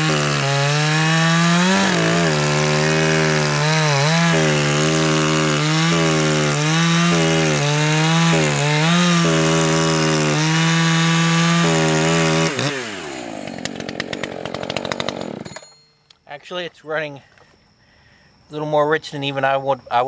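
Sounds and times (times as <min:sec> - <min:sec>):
chainsaw cutting log: 0:00.0 - 0:15.8.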